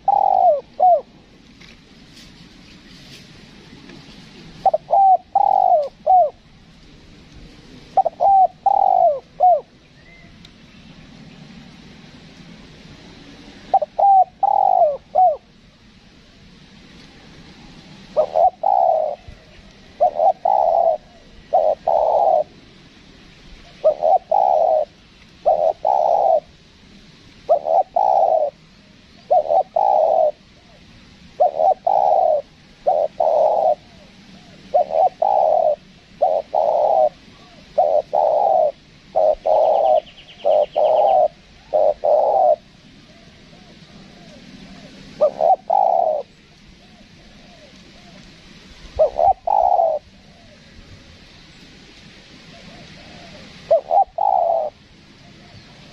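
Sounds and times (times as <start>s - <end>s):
dove cooing: 0.0s - 1.4s, 4.4s - 6.6s, 7.8s - 10.4s, 13.6s - 15.6s, 18.0s - 22.7s, 23.6s - 26.6s, 27.4s - 51.2s, 52.4s - 55.9s.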